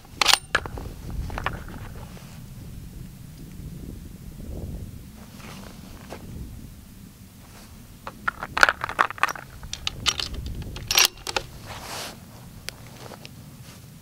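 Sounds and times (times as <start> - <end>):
cartridges clinking: 0.0 - 0.8, 8.1 - 11.8
rifle bolt metallic clicks: 0.0 - 0.8, 8.1 - 11.6
short rustle: 5.2 - 6.4, 7.4 - 14.0.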